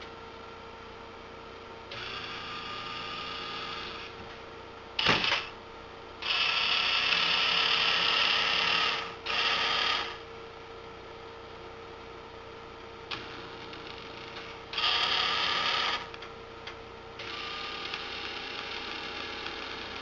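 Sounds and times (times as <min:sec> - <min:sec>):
small electric gear motors running: 0:01.9 - 0:04.1, 0:06.2 - 0:10.2, 0:13.1 - 0:16.2, 0:17.2 - 0:20.0.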